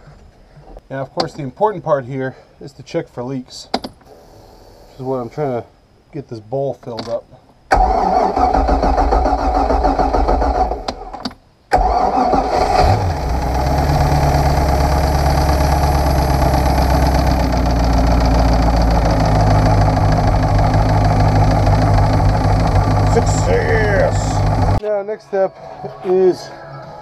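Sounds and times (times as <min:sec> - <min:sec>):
boat engine cranking and idling: 0:11.8 - 0:24.8.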